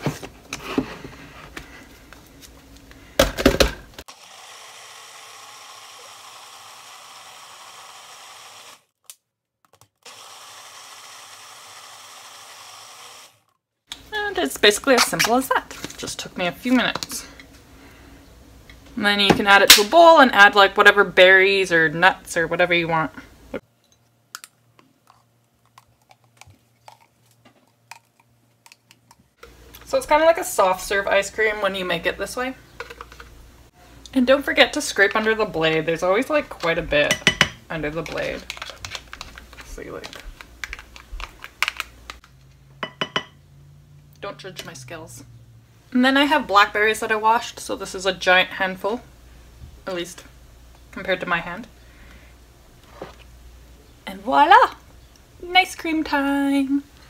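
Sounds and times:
blender motor hum: 4.1s - 8.9s, 10.0s - 13.5s.

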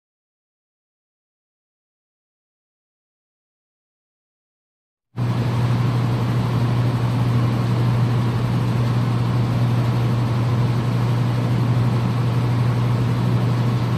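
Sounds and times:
low mechanical hum with hiss: 5.2s - 13.9s.

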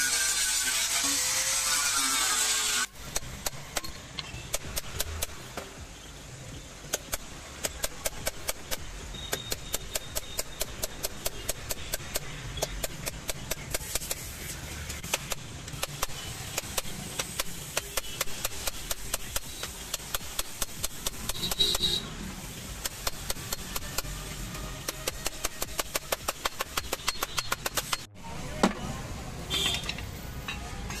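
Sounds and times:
angle grinder sanding metal: 0.0s - 2.9s.

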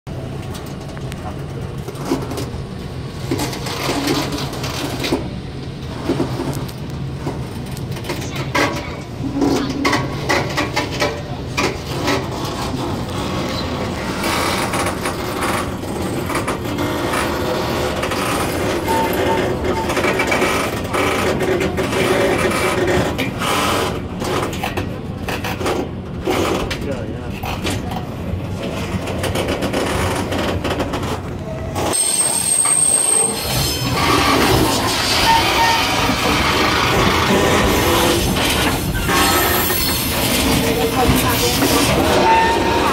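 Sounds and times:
train running noise: 0.1s - 42.9s
shrill steady squeal: 18.9s - 20.0s, 31.9s - 36.6s, 41.5s - 42.9s.

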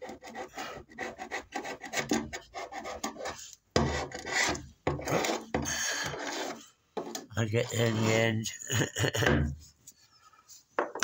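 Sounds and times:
scraper blade scraping steel floor: 0.0s - 6.7s, 7.6s - 8.3s.

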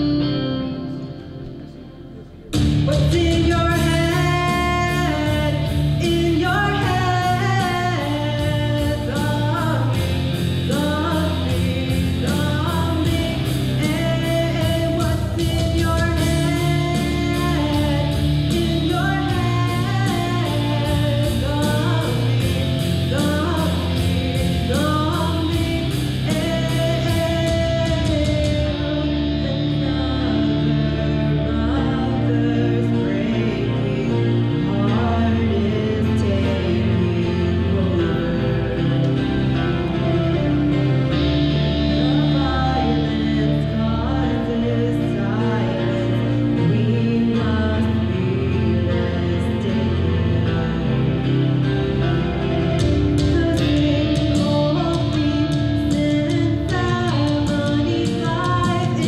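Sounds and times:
rock backing track: 0.0s - 59.0s
woman singing into a microphone: 0.0s - 59.0s.

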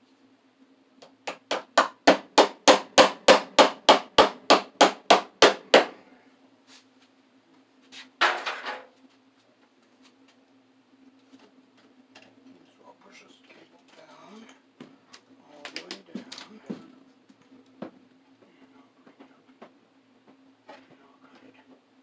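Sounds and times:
hammer blows on staple: 1.5s - 6.0s.

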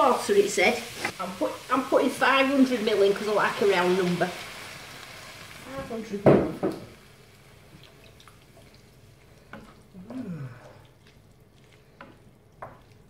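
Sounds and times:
wet sizzle in frying pan: 0.0s - 13.0s
wooden spatula knocking pan: 6.2s - 6.9s.

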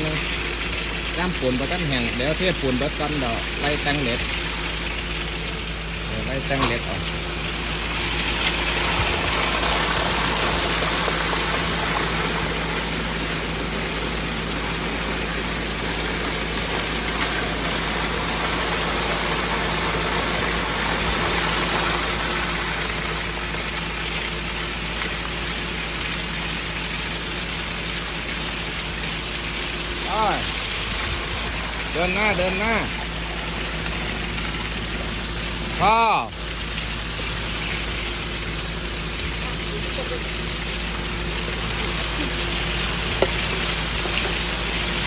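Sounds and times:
concrete mixer truck engine humming: 0.0s - 45.0s
wet concrete rushing down chute: 0.0s - 45.0s.

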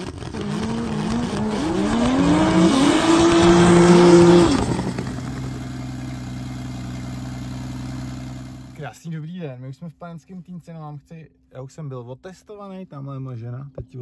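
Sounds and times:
car engine revving: 0.0s - 8.8s.

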